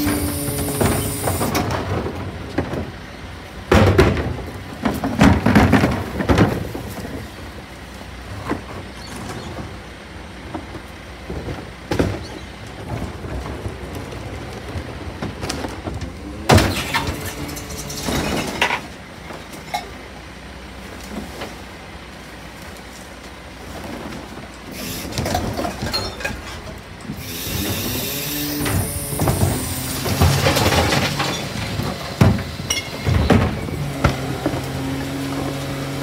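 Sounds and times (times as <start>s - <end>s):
truck engine running: 0.0s - 36.0s
bins clanking against lifter: 28.6s - 34.8s.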